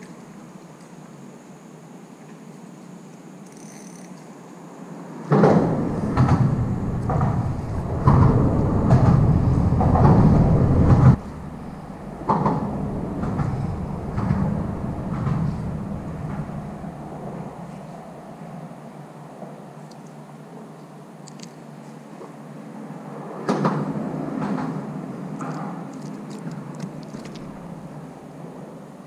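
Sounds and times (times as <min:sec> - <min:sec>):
wind rumbling on microphone: 0:05.0 - 0:20.2, 0:22.6 - 0:29.0.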